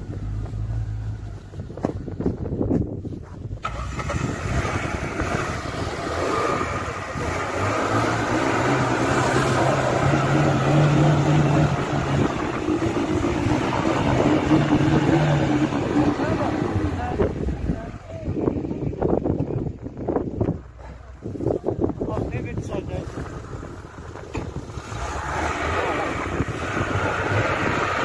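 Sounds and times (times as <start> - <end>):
vehicle engine under load: 0.0 - 28.0.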